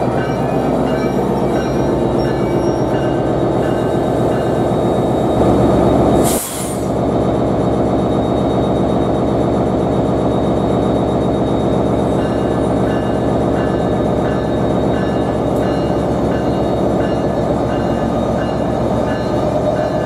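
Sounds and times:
diesel locomotive engine throb: 0.0s - 20.0s
air hiss: 6.2s - 6.9s.

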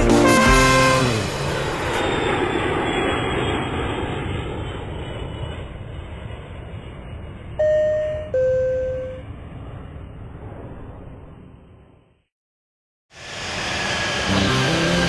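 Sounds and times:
jet engine rush: 0.0s - 12.1s, 13.1s - 15.0s
two-note chime: 7.6s - 9.2s.

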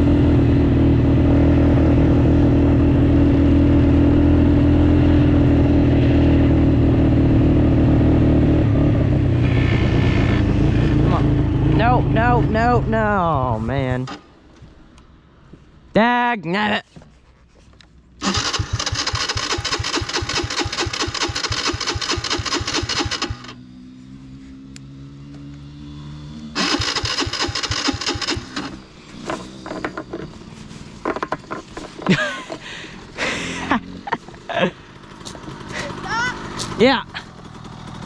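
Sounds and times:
engine loud burst: 18.2s - 23.6s, 26.5s - 28.8s
small engine cranking and idling: 18.2s - 23.6s, 26.5s - 30.4s, 34.7s - 38.0s
knocks and clatter: 27.6s - 30.4s, 31.0s - 32.6s.

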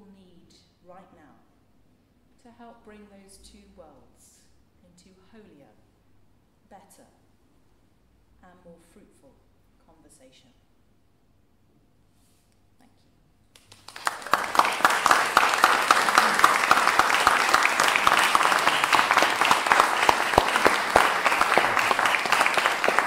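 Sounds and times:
audience applauding: 13.6s - 23.0s.

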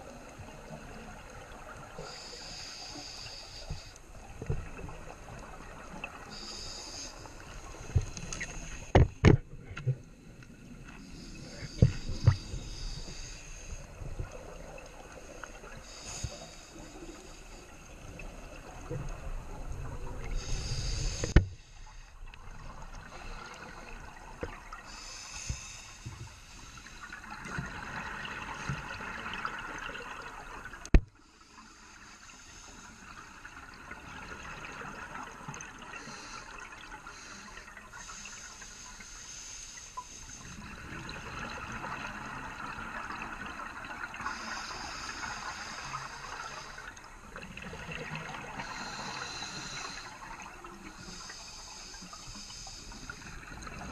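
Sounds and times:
regulator breathing underwater: 2.0s - 4.6s, 6.3s - 9.0s, 10.9s - 14.3s, 15.1s - 18.3s, 20.0s - 22.2s, 23.0s - 27.7s, 44.2s - 47.2s, 48.1s - 53.9s.

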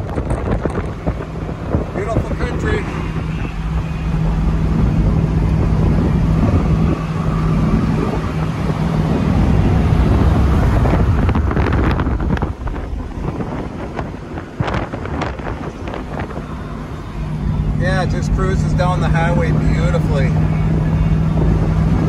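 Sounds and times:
car engine droning: 0.0s - 22.0s
wind buffeting microphone: 0.0s - 22.0s.

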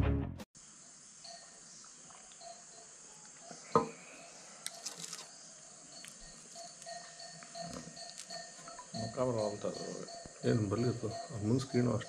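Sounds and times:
insect chorus: 0.6s - 12.0s
glass set down on glass table: 3.7s - 4.0s.

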